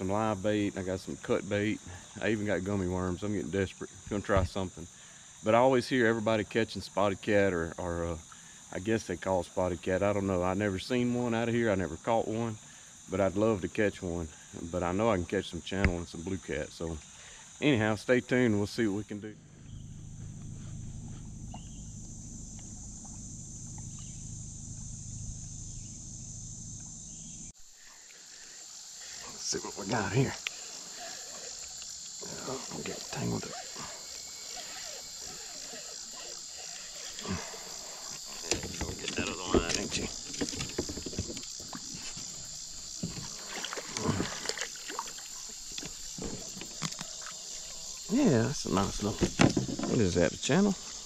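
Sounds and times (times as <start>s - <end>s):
insects droning: 0.0s - 51.0s
low hum: 19.1s - 27.6s
knocks and rattles of fishing gear: 38.3s - 42.4s, 49.1s - 50.1s.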